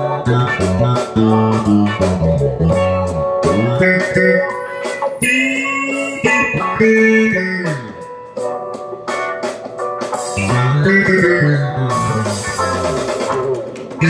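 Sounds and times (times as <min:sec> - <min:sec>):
plucked bass guitar line: 0:00.0 - 0:04.6, 0:05.2 - 0:08.2, 0:10.4 - 0:14.0
backing track: 0:00.0 - 0:14.0.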